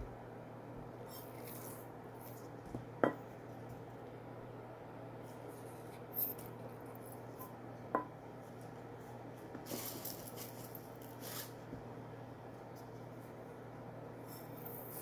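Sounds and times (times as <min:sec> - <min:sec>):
spice rustling scrapes: 0:01.0 - 0:02.6, 0:05.3 - 0:07.3, 0:09.4 - 0:11.7.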